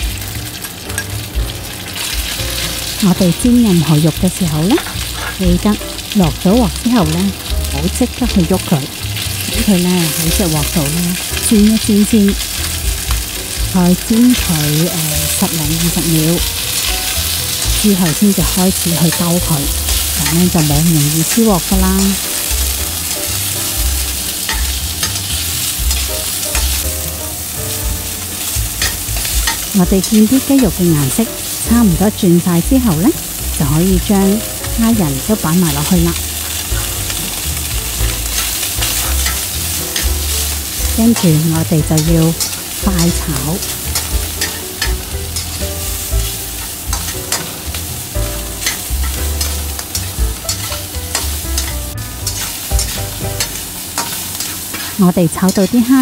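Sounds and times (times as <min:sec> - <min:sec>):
chicken sizzling in oil: 0:00.0 - 0:56.0
metal spatula scraping wok: 0:04.4 - 0:06.5, 0:08.2 - 0:32.2, 0:34.0 - 0:56.0.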